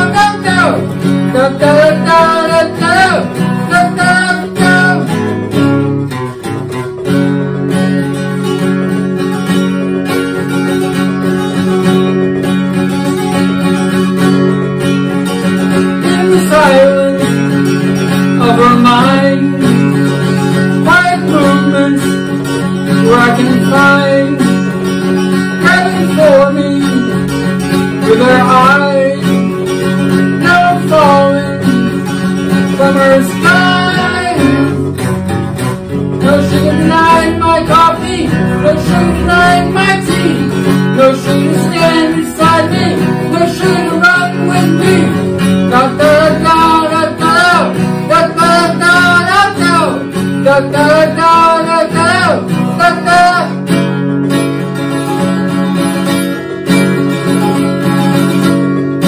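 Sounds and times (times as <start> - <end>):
man singing: 0.0 - 5.7, 15.4 - 53.8
acoustic guitar strumming: 0.0 - 59.0.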